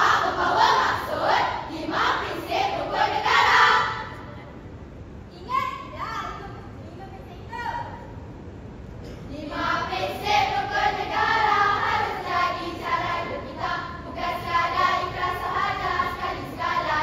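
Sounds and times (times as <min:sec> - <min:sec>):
girls chanting in unison: 0:00.0 - 0:04.2, 0:09.3 - 0:17.0.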